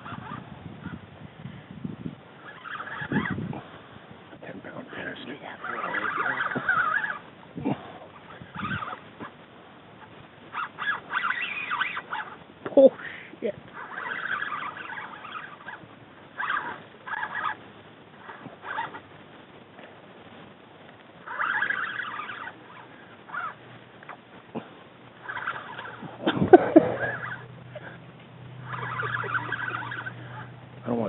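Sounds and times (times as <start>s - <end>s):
fishing reel rasping: 0.0s - 0.9s, 2.4s - 3.6s, 4.8s - 9.4s, 10.0s - 19.2s, 21.2s - 24.2s, 25.2s - 28.0s, 28.6s - 31.0s
low steady hum: 0.0s - 31.0s
wavering pitched sound: 2.4s - 3.5s, 5.1s - 7.3s, 10.0s - 13.1s, 13.7s - 17.6s, 21.2s - 24.2s, 25.2s - 31.0s.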